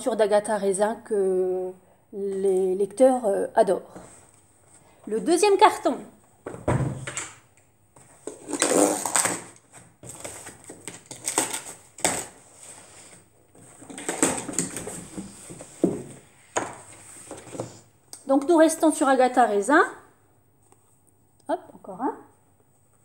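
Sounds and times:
cardboard and paper rustling: 8.0 - 17.8.

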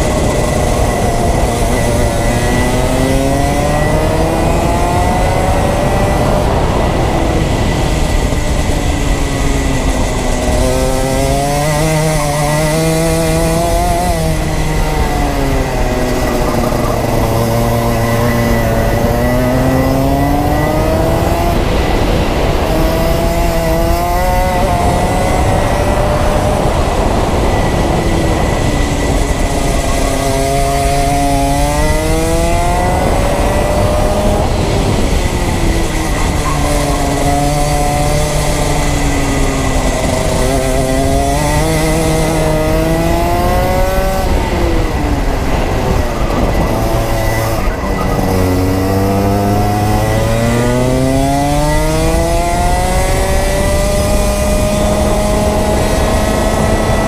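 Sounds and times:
kart engine revving: 0.0 - 57.0.

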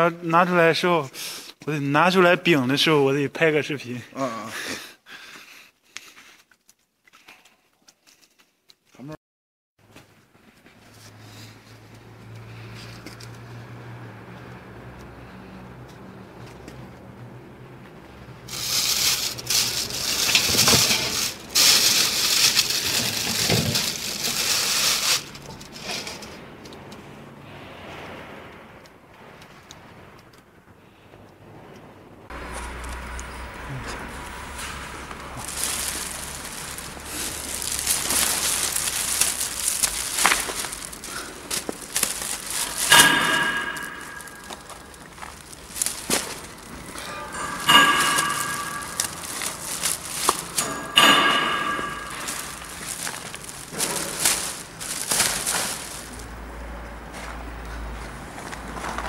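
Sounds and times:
plastic wrapping crinkling: 18.3 - 26.5, 34.0 - 56.5
pieces knocking together: 18.5 - 26.3, 35.1 - 56.3.

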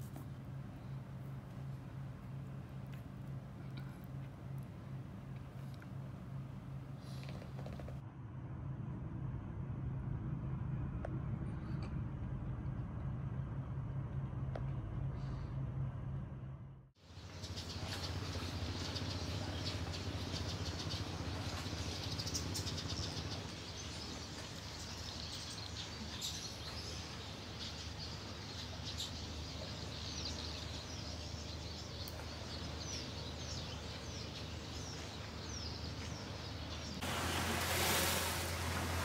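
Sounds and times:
steady low hum: 0.0 - 39.0
small birds chirping: 17.0 - 37.0.

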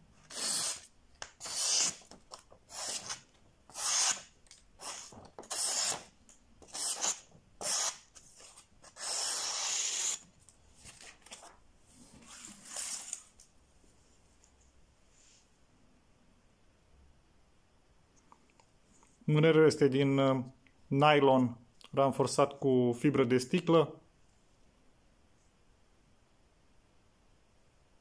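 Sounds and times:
knife slicing paper: 0.3 - 10.2.

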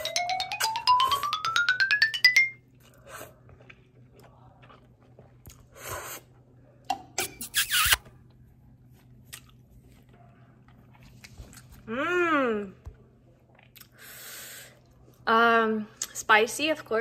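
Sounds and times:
quiet chewing: 2.8 - 6.6, 8.2 - 11.9, 12.8 - 15.2.

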